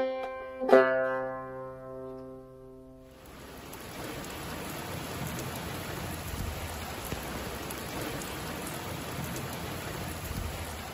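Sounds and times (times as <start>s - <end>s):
steady rain hissing: 3.0s - 10.9s.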